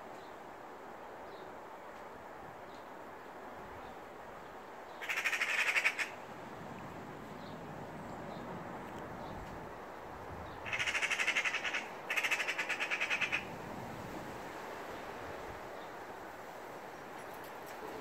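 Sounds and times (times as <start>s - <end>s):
magpie rattling chatter: 5.0s - 6.1s, 10.6s - 13.4s.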